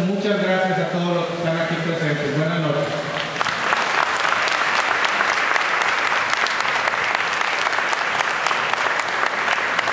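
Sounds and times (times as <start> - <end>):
crowd applauding: 3.2 - 9.9.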